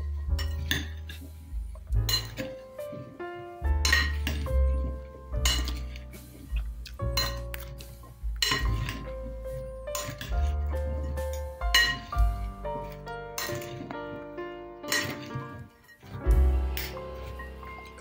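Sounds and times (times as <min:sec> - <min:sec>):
background music with bass: 0:00.0 - 0:18.0
metal spoons clinking on glass bowl: 0:02.1 - 0:02.5, 0:03.8 - 0:04.5, 0:05.4 - 0:06.0, 0:07.1 - 0:07.7, 0:08.4 - 0:09.1, 0:09.9 - 0:12.1, 0:13.4 - 0:13.8.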